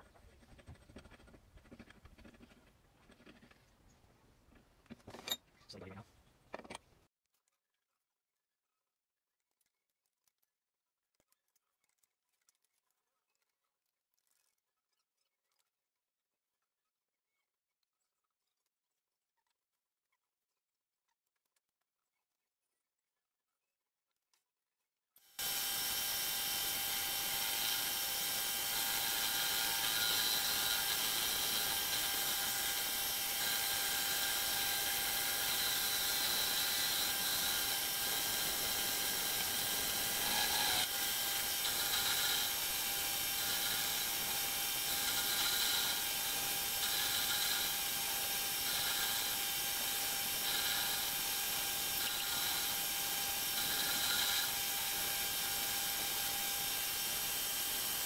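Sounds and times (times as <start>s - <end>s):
metal lathe whine: 25.4s - 58.0s
tool bit cutting steel: 25.4s - 58.0s.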